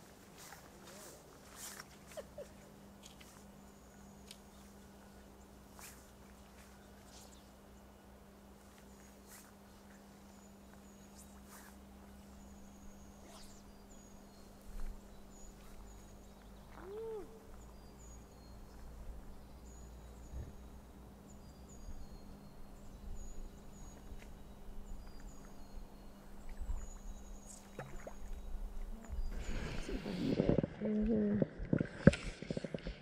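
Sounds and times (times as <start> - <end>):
steady low hum: 0.0 - 33.0
lower bird call: 15.3 - 18.6.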